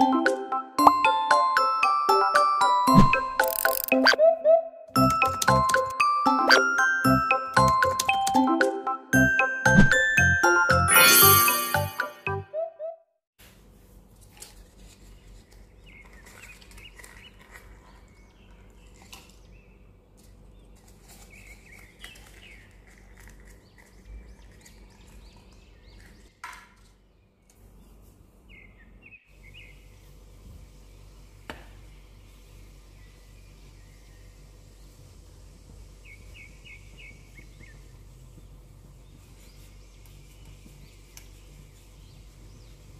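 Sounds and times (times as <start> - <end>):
small birds chirping: 35.9 - 42.9.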